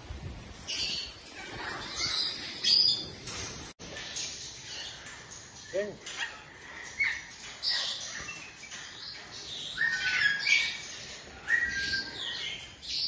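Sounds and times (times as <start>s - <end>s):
bird chirps: 0.7s - 13.0s.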